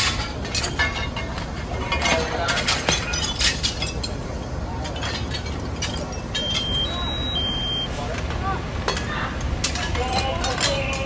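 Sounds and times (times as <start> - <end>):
glass shattering: 0.0 - 7.3.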